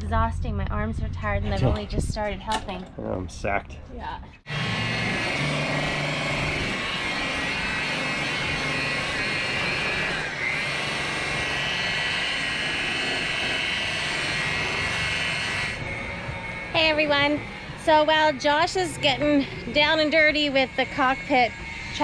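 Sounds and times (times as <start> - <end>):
electric polisher whining: 4.4 - 22.0.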